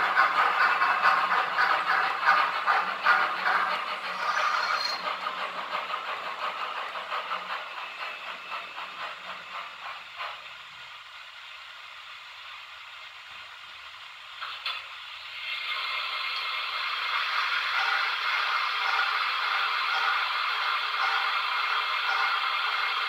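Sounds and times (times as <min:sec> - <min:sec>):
model train wheels clattering: 0:00.0 - 0:11.6, 0:12.4 - 0:23.0.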